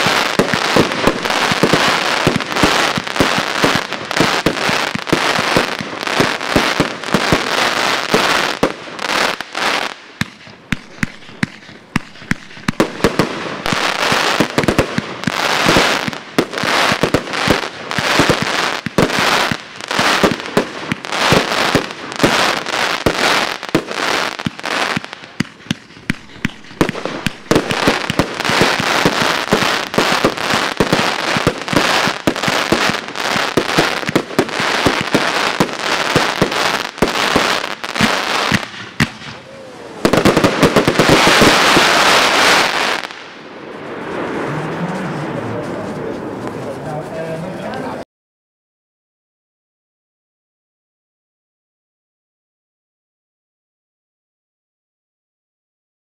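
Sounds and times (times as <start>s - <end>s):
fireworks bursting and crackling: 0.0s - 48.0s
firework launch thumps: 10.2s - 14.8s.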